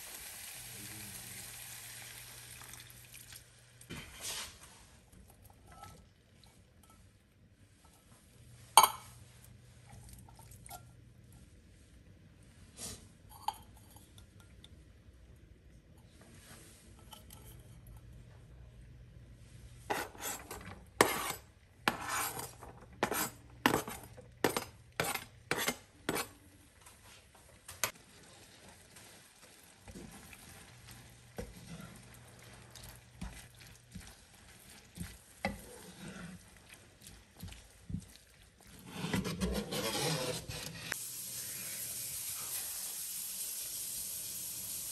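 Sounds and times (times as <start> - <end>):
wooden spoon scraping pan: 19.8 - 26.3, 29.9 - 37.6, 38.6 - 41.0.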